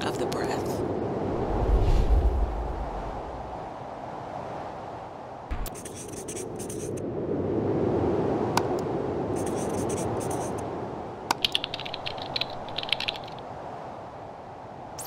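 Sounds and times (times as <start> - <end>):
steady rushing noise: 0.8 - 4.7, 5.4 - 13.8
marker scratching on paper: 5.6 - 7.0, 9.4 - 10.6.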